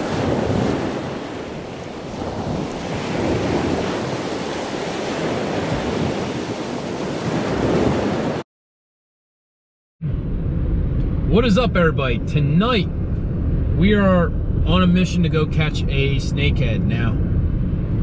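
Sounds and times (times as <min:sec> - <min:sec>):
ocean waves rushing: 0:00.0 - 0:08.4.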